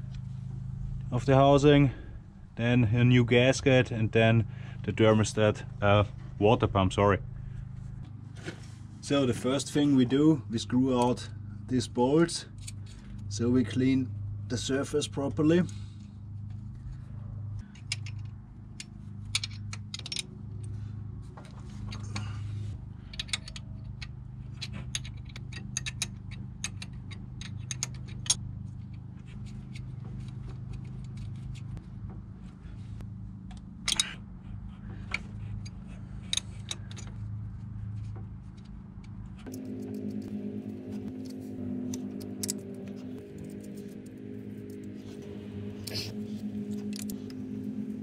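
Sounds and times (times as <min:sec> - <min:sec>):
steady low hum: 0:00.0 - 0:48.0
metallic clinks of wrench and bolts: 0:23.1 - 0:28.4, 0:33.8 - 0:34.2.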